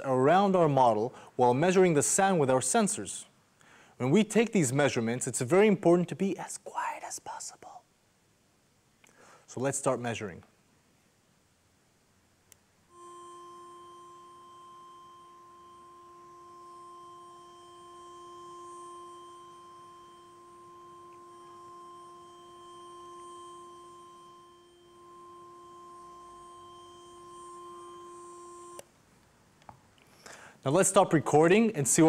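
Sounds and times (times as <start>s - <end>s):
speaker playing steady tone: 12.8s - 28.9s.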